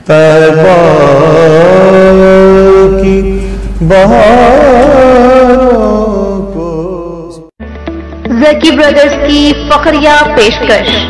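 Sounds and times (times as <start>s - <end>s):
man singing devotional song: 0.0s - 7.5s.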